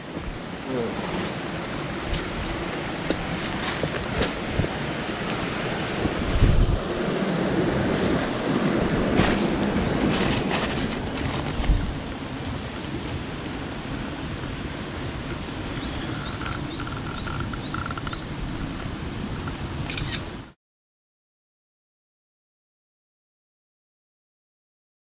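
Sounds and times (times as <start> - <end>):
stream running over rocks: 0.0 - 19.7
bird chirping: 15.6 - 18.3.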